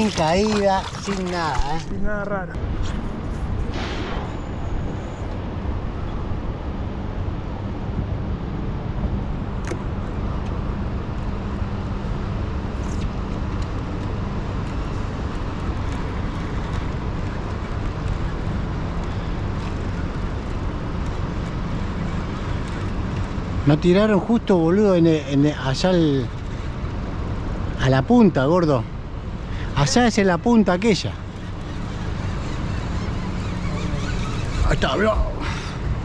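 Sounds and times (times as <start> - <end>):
boat motor humming: 0.0 - 2.4, 28.9 - 36.0.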